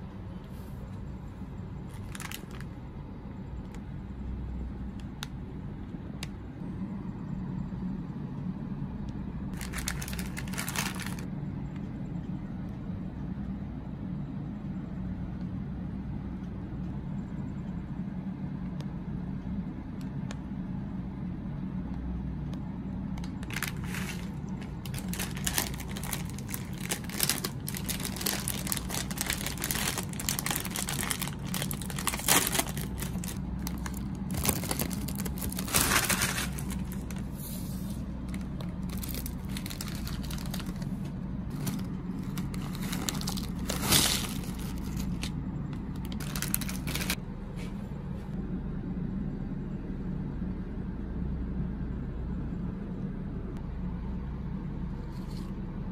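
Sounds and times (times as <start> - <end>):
steady low hum: 0.0 - 55.9
chip bag crinkling: 1.8 - 2.8, 9.6 - 11.3, 23.2 - 37.2, 38.2 - 47.2.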